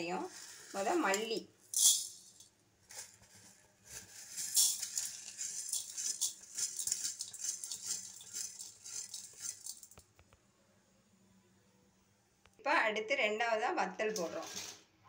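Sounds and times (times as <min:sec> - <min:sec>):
seeds rattling in a dry metal pan: 0:00.0 - 0:10.2.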